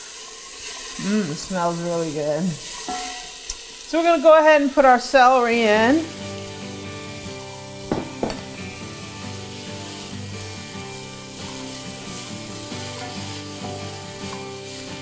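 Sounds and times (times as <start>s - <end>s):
vegetables sizzling in oil: 0.0s - 15.0s
soft background music: 5.7s - 15.0s
sharp knocks: 7.9s - 8.5s.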